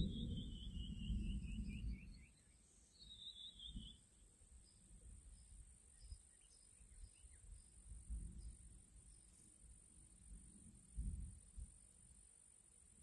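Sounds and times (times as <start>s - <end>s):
low rumble: 0.0s - 2.2s.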